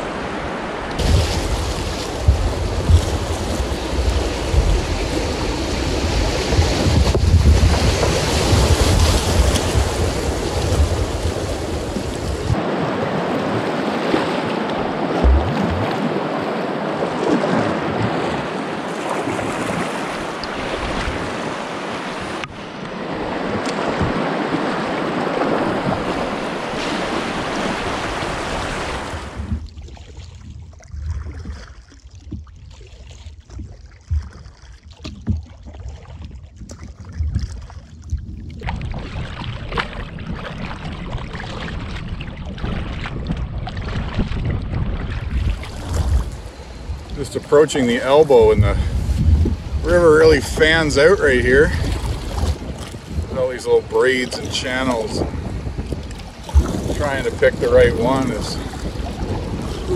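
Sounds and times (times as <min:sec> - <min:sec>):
wind on microphone: 0:00.0 - 0:16.4, 0:17.0 - 0:59.9
low knocks: 0:01.0 - 0:05.0, 0:24.0 - 0:24.2.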